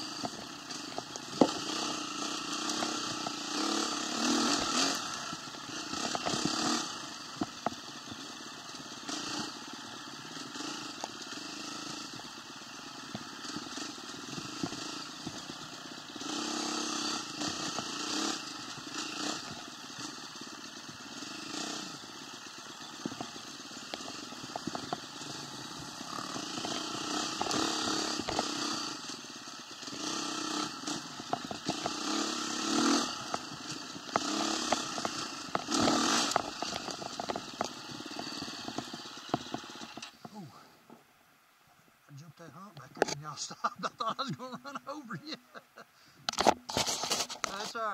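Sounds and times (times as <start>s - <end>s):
vehicle engine revving: 0.0s - 40.6s
clicks and crackle: 5.8s - 6.5s, 23.0s - 28.4s, 31.2s - 32.0s, 33.1s - 40.3s, 46.2s - 47.8s.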